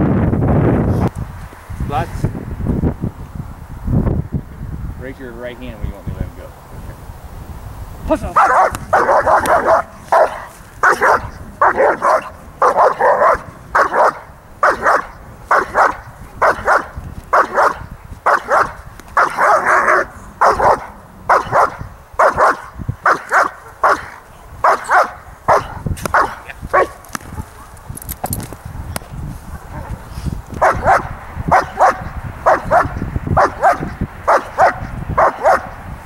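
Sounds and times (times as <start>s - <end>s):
dog barking hard: 8.4s - 27.8s, 29.5s - 30.0s, 30.6s - 35.8s.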